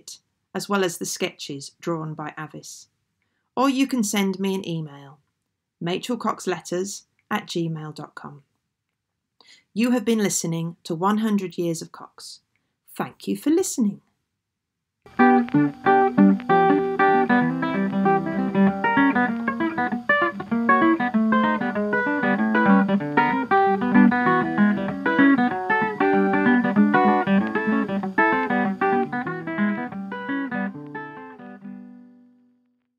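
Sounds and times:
plucked guitar music: 0:15.1 - 0:32.8.

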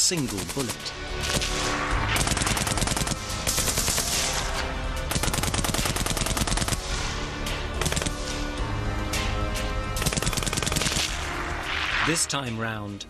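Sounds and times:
background music: 0:00.0 - 0:13.0
machine gun automatic fire: 0:02.2 - 0:04.3, 0:05.1 - 0:06.8, 0:07.8 - 0:08.2, 0:10.0 - 0:11.1.

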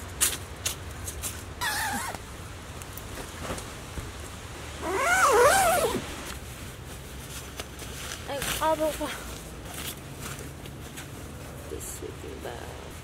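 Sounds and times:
sleeping bag fabric rustling: 0:04.8 - 0:12.0.

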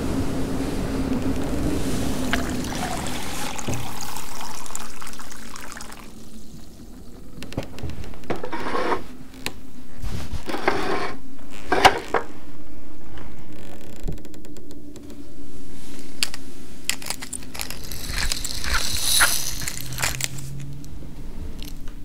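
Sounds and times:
liquid pouring into ceramic bowl: 0:02.2 - 0:07.1.

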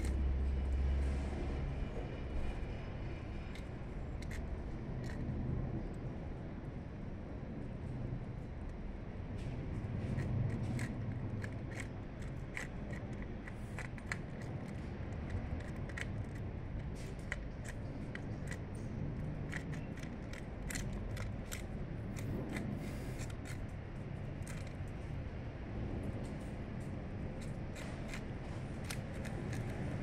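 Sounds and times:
low background rumble: 0:00.0 - 0:30.0
cat chewing and licking: 0:09.9 - 0:23.7, 0:27.3 - 0:30.0.

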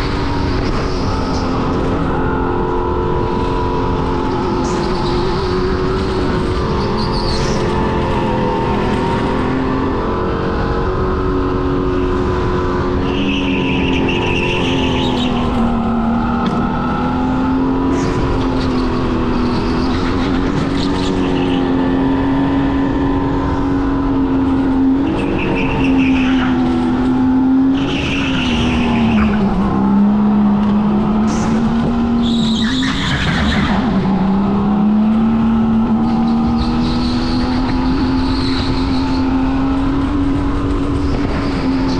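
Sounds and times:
go-kart engine running: 0:00.0 - 0:41.9.

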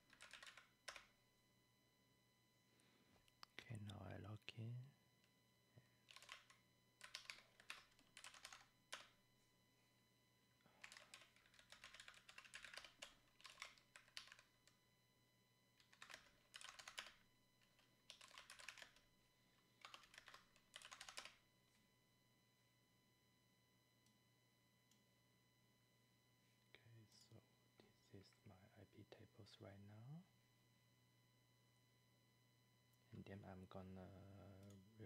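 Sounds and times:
computer keyboard typing: 0:00.0 - 0:01.1, 0:06.1 - 0:09.2, 0:10.8 - 0:14.8, 0:15.8 - 0:19.0, 0:19.8 - 0:21.4.

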